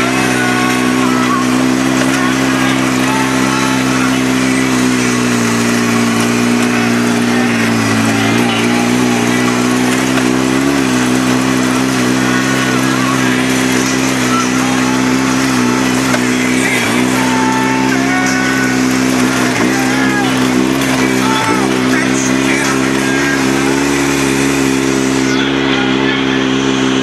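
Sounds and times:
steady noisy rush: 0:00.0 - 0:27.0
vehicle engine running: 0:00.0 - 0:27.0.

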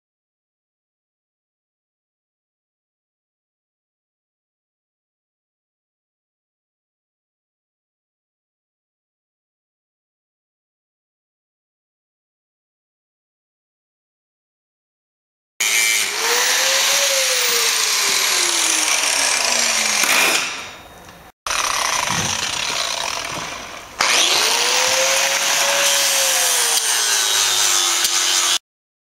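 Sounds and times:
angle grinder grinding steel: 0:15.6 - 0:20.9, 0:21.5 - 0:28.6.

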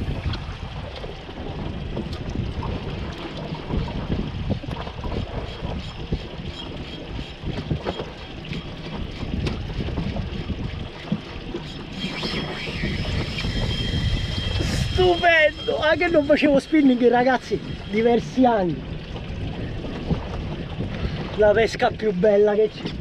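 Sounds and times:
sea washing around boat: 0:00.0 - 0:23.0
wind buffeting microphone: 0:00.0 - 0:23.0
fishing reel drag whine: 0:05.4 - 0:09.3, 0:11.0 - 0:18.7.

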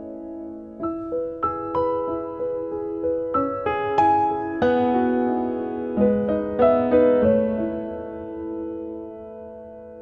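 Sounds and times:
slow gentle piano melody: 0:00.0 - 0:10.0.

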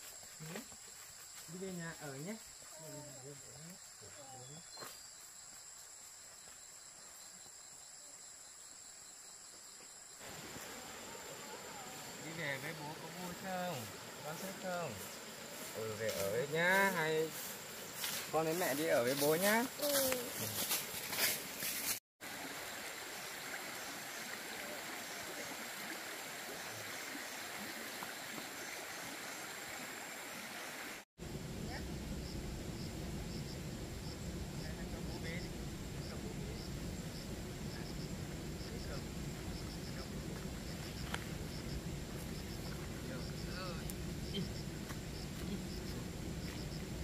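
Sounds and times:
insects chirring: 0:00.0 - 0:22.0, 0:22.6 - 0:47.0
flowing water rushing: 0:10.2 - 0:19.7, 0:20.3 - 0:31.1.

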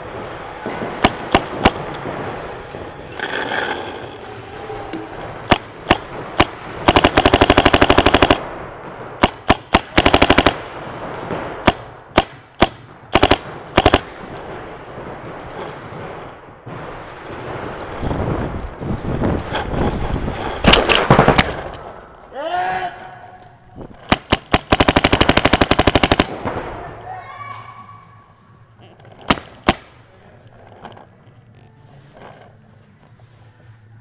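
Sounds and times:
paintball marker firing: 0:00.9 - 0:02.1, 0:05.4 - 0:08.4, 0:09.2 - 0:10.6, 0:11.4 - 0:14.5, 0:24.0 - 0:26.4, 0:29.2 - 0:30.0.

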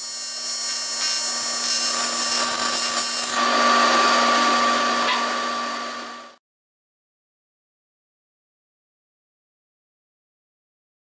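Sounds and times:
welding arc buzzing hum: 0:00.0 - 0:06.4.

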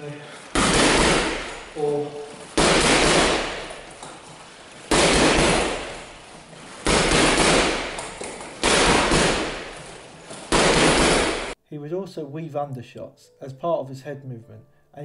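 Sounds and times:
punches hitting heavy bag: 0:00.5 - 0:04.0, 0:04.9 - 0:11.6.

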